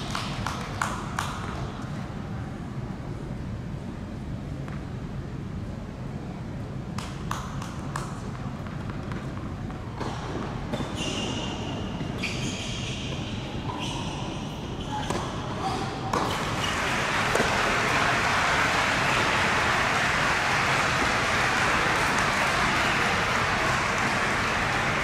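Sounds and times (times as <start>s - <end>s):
shoes squeaking on hard court: 10.0s - 17.5s
racket hitting ball: 16.1s - 18.2s.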